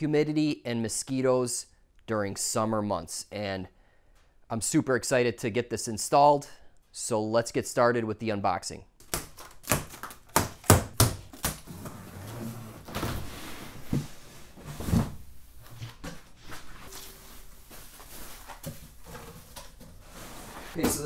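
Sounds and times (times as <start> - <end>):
cardboard and foam rustling: 11.2 - 21.0.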